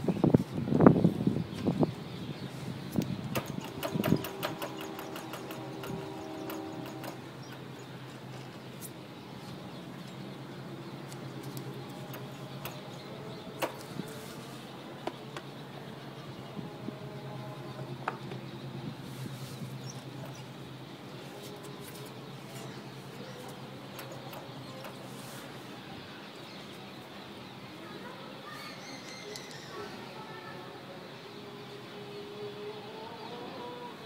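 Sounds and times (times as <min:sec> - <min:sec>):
steady low hum: 0:00.0 - 0:27.9
spanner clicking on metal: 0:03.3 - 0:07.7.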